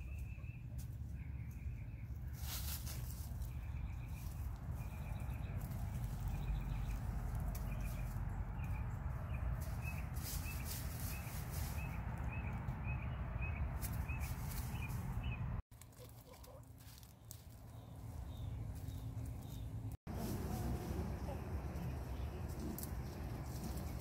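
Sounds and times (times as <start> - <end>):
low outdoor rumble: 0.0 - 15.6, 16.4 - 24.0
small bird chirping: 0.0 - 15.6.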